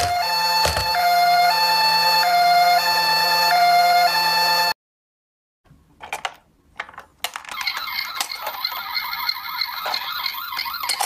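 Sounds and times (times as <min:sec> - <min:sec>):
toy siren warbling wail: 0:00.0 - 0:04.7, 0:07.5 - 0:11.0
plastic toy cars clicking: 0:06.0 - 0:08.7, 0:09.8 - 0:11.0.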